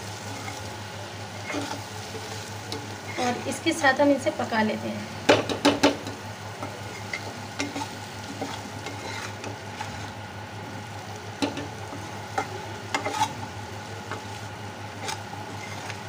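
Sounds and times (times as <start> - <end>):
food sizzling in oil: 0.0 - 16.0
metal spoon scraping a pan: 1.4 - 1.9, 6.9 - 10.1, 11.4 - 13.5, 14.9 - 16.0.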